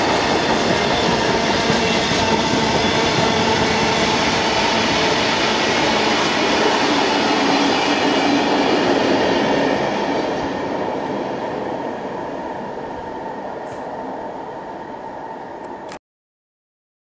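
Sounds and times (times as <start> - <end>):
freight train rumbling: 0.0 - 15.9
rail hiss: 13.6 - 14.2.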